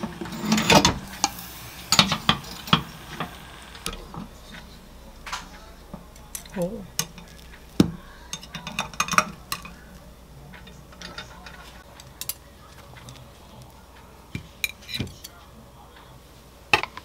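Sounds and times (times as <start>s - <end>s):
tongs clicking on waffle iron: 0.2s - 4.2s, 10.6s - 15.4s.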